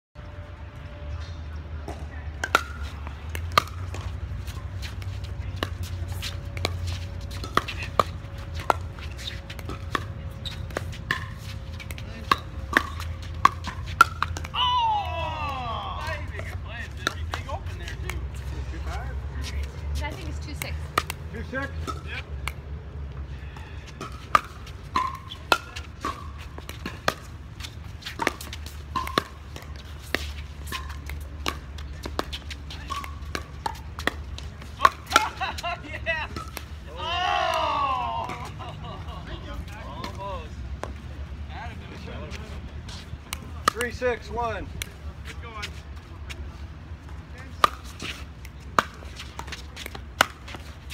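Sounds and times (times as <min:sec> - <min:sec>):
paddles hitting plastic ball: 0:02.4 - 0:18.3, 0:24.0 - 0:35.6.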